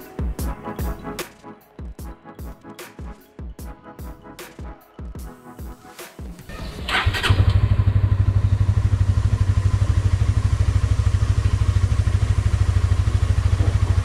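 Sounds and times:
motorcycle engine starting and idling: 6.4 - 14.0.

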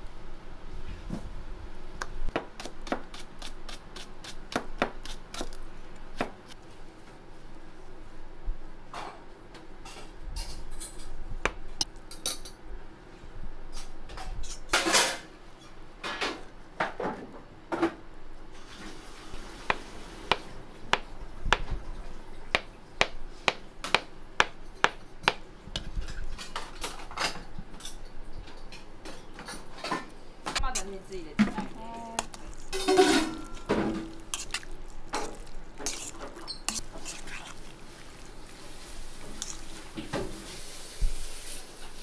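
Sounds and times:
dishes and utensils clinking: 26.0 - 37.6.

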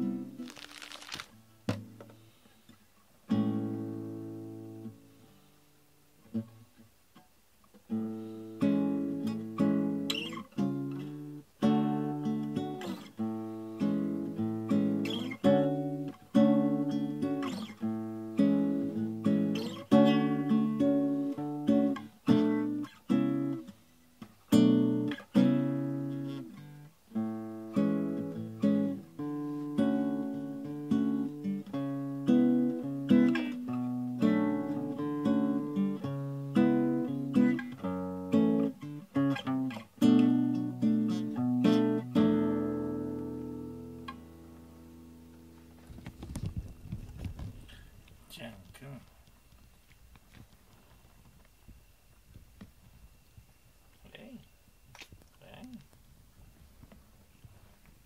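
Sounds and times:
classical guitar chords strummed slowly: 0.0 - 0.5, 3.2 - 45.9.

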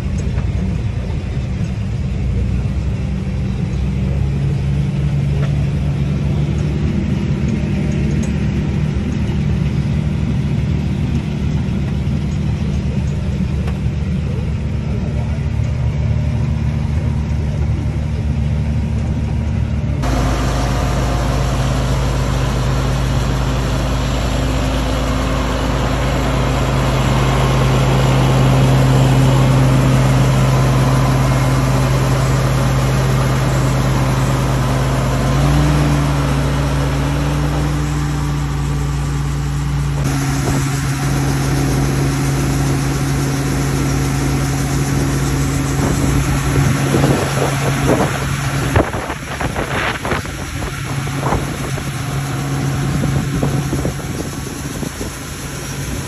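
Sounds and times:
diesel engine running steadily: 0.0 - 56.0.

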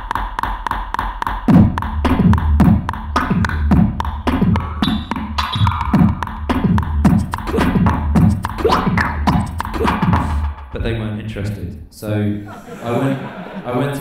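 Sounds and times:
beatboxed hi-hat ticking: 0.0 - 10.8
beatboxed kick sounds: 0.0 - 11.0.

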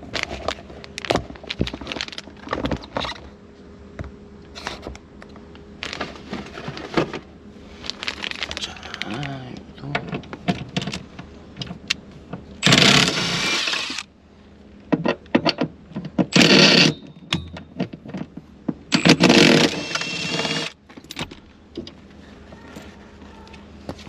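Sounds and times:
cordless power tool driving bolts: 12.6 - 14.1, 16.3 - 17.0, 18.9 - 20.8.

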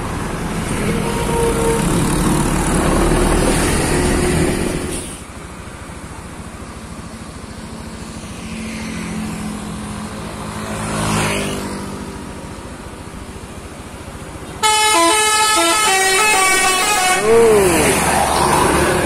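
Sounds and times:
vehicle passing by: 7.9 - 12.4, 17.2 - 19.0
musical air horn melody: 14.6 - 17.4.

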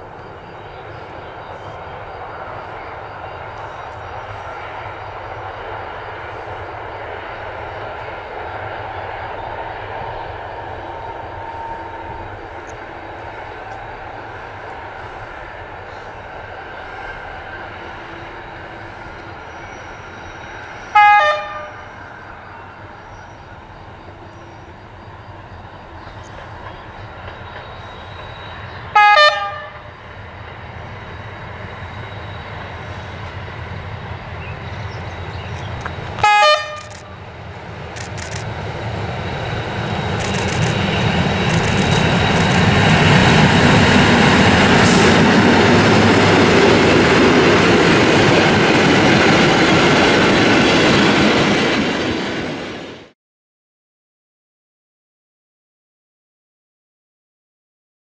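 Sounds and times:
diesel locomotive engine running: 0.0 - 53.1
train horn blasts: 20.9 - 22.0, 27.9 - 30.0, 36.1 - 37.2.

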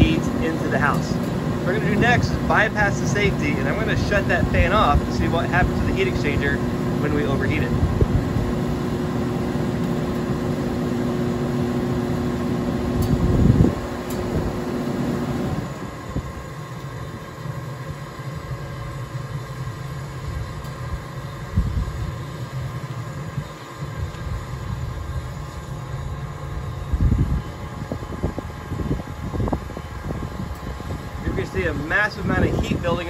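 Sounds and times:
furnace blower motor humming: 0.0 - 33.0
furnace burners and combustion fan: 0.0 - 33.0.

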